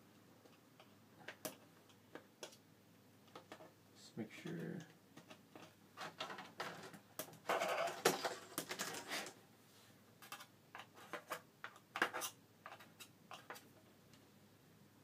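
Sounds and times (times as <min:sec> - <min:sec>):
rustling and scraping plastic: 0:05.2 - 0:13.7.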